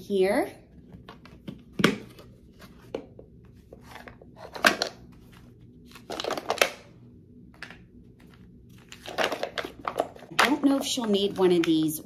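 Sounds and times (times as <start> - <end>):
plastic clatter and crinkling: 5.9 - 6.9, 7.6 - 11.9.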